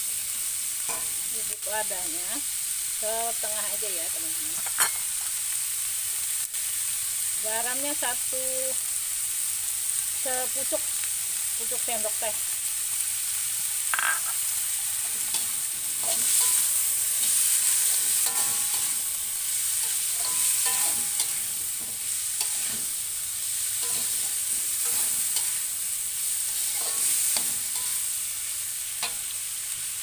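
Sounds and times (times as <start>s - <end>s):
vegetables sizzling in oil: 0.0s - 30.0s
metal spatula scraping a wok: 14.0s - 28.2s.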